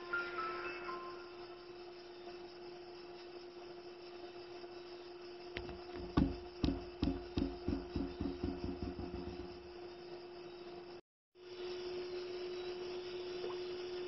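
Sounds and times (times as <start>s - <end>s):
sharp knocks: 5.6s - 9.7s.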